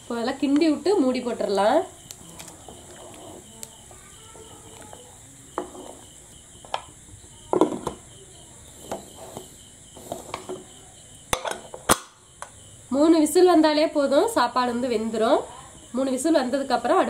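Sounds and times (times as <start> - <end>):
metal lid clinks and knocks: 11.3 - 12.2.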